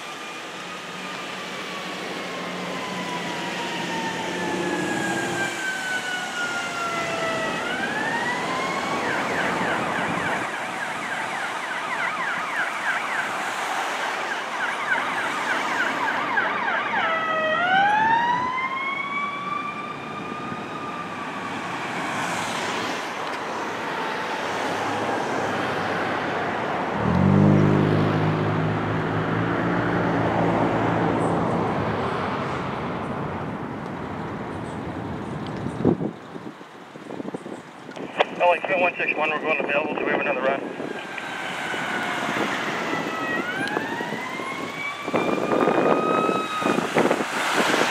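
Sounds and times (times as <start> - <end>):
emergency sirens wailing: 0.0 - 47.9.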